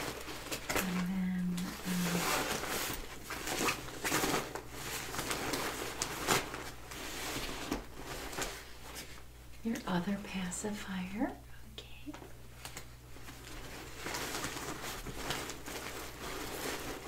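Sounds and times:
woman humming: 0.8s - 2.4s.

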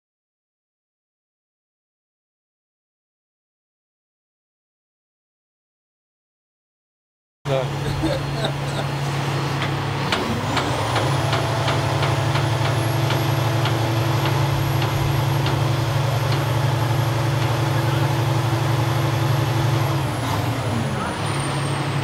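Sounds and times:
truck engine revving: 7.5s - 22.0s.

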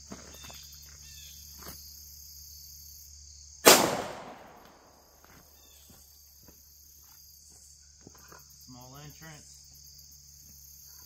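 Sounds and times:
pistol shot echoing: 3.6s - 5.0s.

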